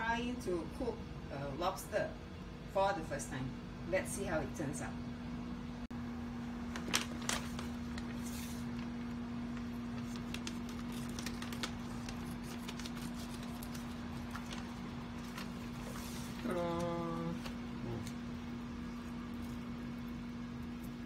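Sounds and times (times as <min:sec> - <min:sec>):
steady hum: 0:00.0 - 0:21.0
plastic crinkling: 0:06.6 - 0:17.6.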